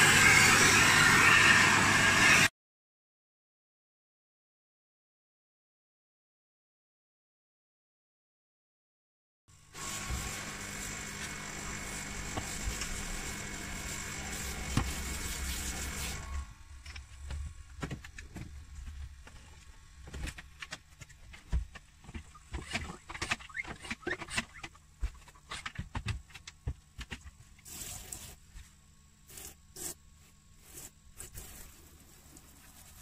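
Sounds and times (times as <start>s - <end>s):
carpet spray extractor running: 9.6s - 16.5s.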